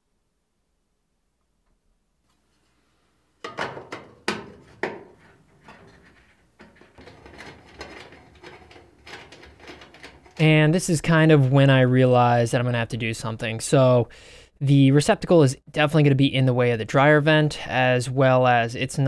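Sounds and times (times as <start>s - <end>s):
sheet metal rattling and rubbing: 3.5s - 10.9s.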